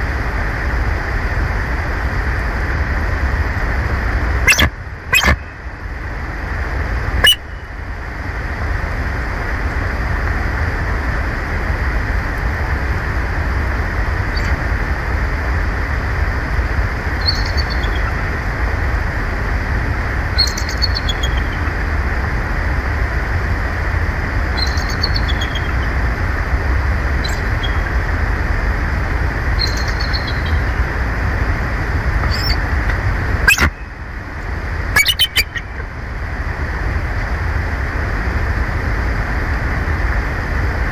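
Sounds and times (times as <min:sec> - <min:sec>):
eagle calling: 0:04.5 - 0:05.5, 0:07.2 - 0:07.6, 0:17.2 - 0:18.2, 0:20.4 - 0:21.7, 0:24.6 - 0:25.9, 0:29.6 - 0:30.8, 0:32.2 - 0:32.6, 0:33.4 - 0:33.9, 0:35.0 - 0:35.8.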